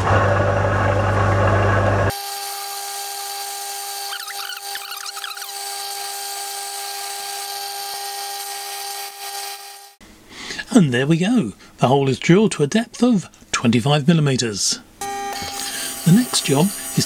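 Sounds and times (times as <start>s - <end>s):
wavering cutting noises: 3.9s - 6.2s
metal lathe drilling hum: 15.0s - 17.0s.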